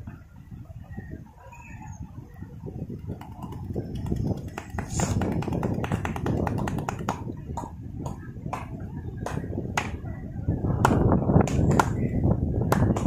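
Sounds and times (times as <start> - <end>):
low background rush: 0.0 - 13.0
hands tapping and slapping on head: 3.1 - 10.0, 10.8 - 12.1, 12.7 - 13.0.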